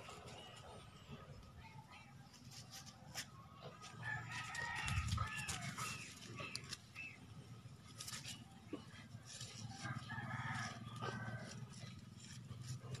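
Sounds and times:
rooster crowing: 9.7 - 11.6.

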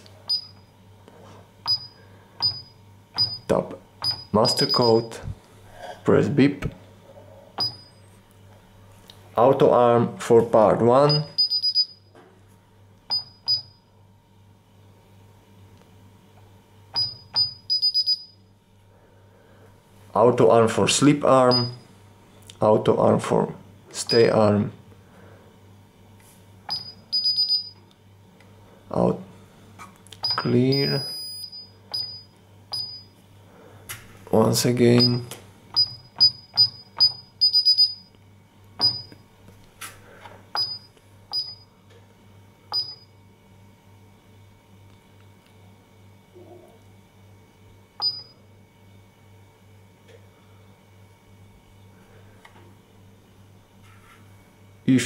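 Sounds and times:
alarm keypad beeping: 1.7 - 5.2, 11.1 - 12.0, 17.0 - 18.4, 21.5 - 21.8, 26.7 - 27.8, 30.2 - 33.1, 35.8 - 38.1, 38.8 - 39.1, 40.6 - 41.7, 42.7 - 43.1.

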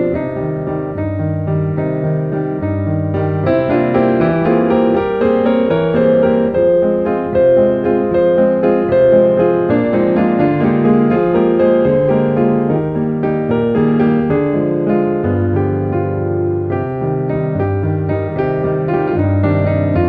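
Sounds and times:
classical piano piece: 0.0 - 20.0.

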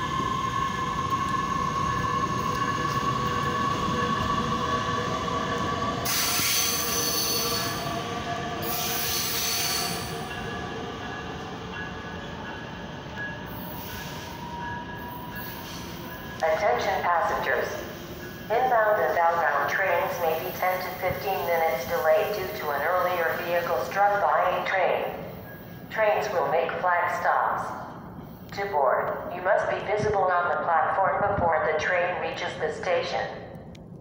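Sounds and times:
train wheels rumbling: 0.0 - 26.5
electric train whine: 0.0 - 26.7.

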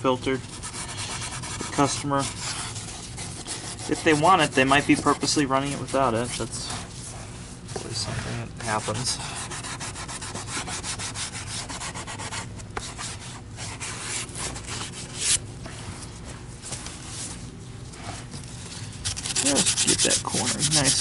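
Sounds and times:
scrub pad rubbing on plastic: 0.4 - 7.2, 7.9 - 15.3, 19.0 - 21.0.

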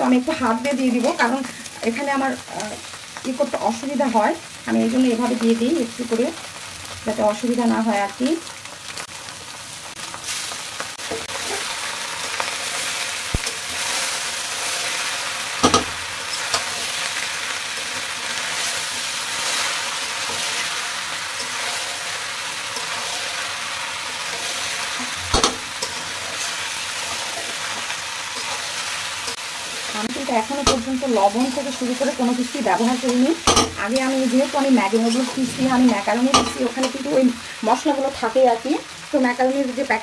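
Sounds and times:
noodles sizzling in a wok: 0.0 - 40.0
metal spatula scraping: 11.0 - 37.1
spatula clacking on pan: 30.6 - 31.6.

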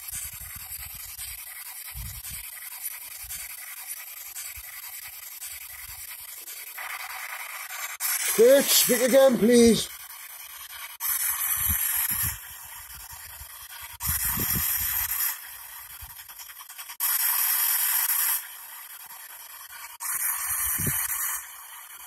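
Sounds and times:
radio static hiss bursts: 5.6 - 9.9.

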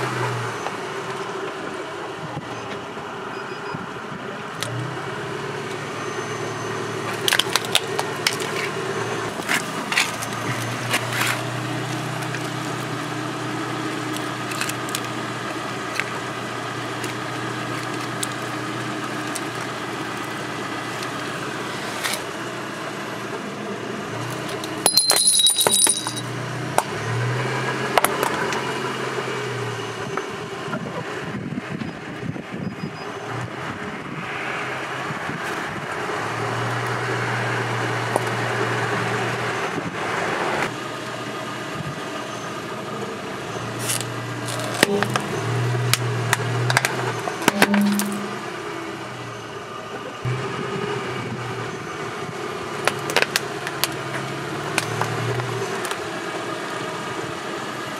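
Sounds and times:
car engine idling: 0.0 - 30.8, 40.8 - 57.9
plastic pieces clicking and rattling: 43.8 - 45.2.

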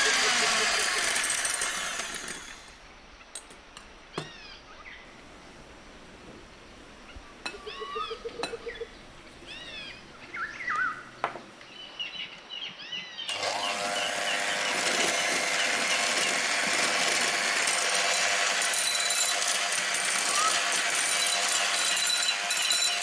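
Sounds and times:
electric hand mixer whirring: 0.0 - 2.6, 13.3 - 18.5.

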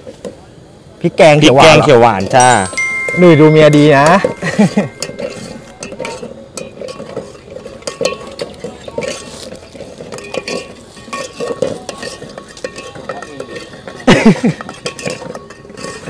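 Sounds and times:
ladle clinking against pot: 2.4 - 9.3, 10.0 - 16.0
metal ladle scraping a pot: 5.0 - 16.0.

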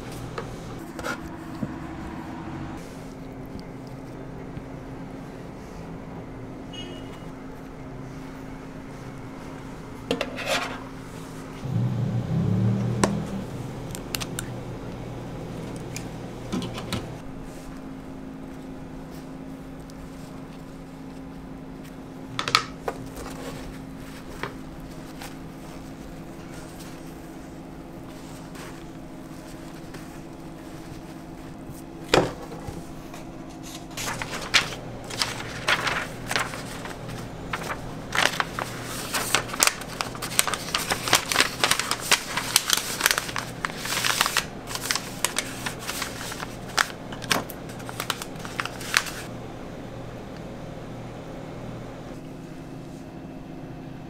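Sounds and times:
steady low hum: 10.8 - 54.0
paper rustling and crinkling: 22.7 - 49.3.

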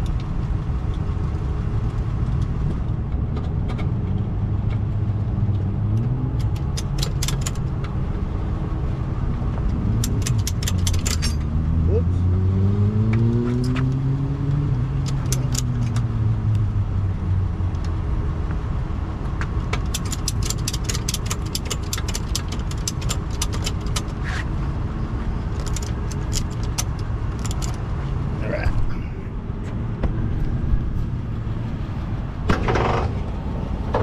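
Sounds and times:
ratchet strap clicking: 6.4 - 7.6, 10.0 - 11.5, 15.0 - 16.1, 19.7 - 24.4, 25.6 - 27.8
tow truck engine running: 19.2 - 34.0.

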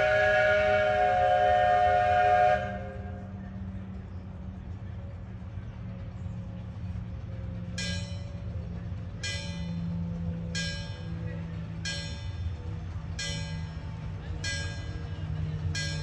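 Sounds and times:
train rumble: 0.0 - 16.0
locomotive bell ringing: 7.4 - 16.0.

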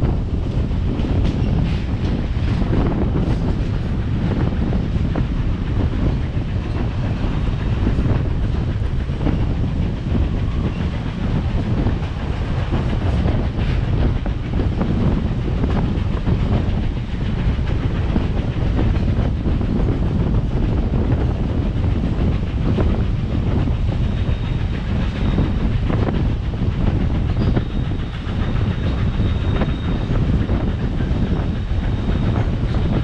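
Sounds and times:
clickety-clack of track: 0.0 - 33.0
train wheels rumbling on rails: 0.0 - 33.0.

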